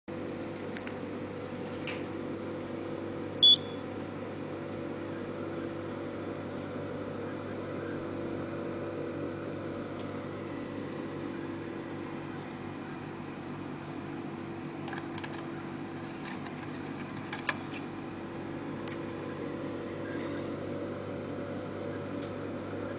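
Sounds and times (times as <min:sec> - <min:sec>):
low machine hum: 0:00.1 - 0:22.9
short high beep: 0:03.4 - 0:03.8.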